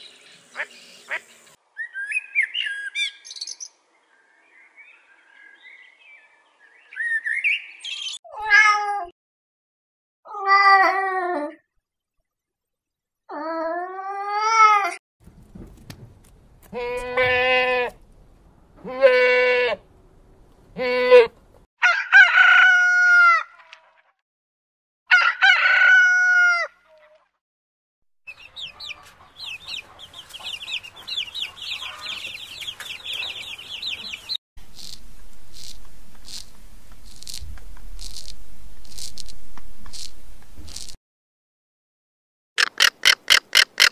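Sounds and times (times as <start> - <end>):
goat bleating: 16.7 - 18.0, 18.8 - 19.8, 20.8 - 21.4
rooster crowing: 21.8 - 23.5, 25.1 - 26.8, 28.6 - 34.4
chicks peeping: 28.3 - 37.4.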